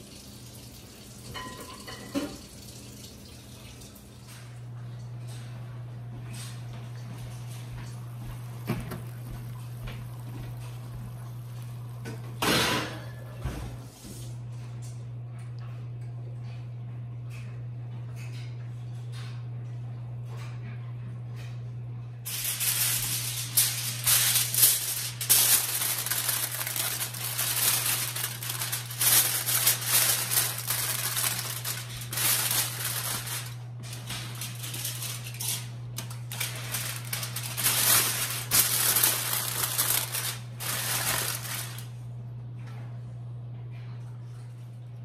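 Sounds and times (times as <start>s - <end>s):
aluminium foil crinkling: 7.3s - 12.8s, 22.3s - 42.0s.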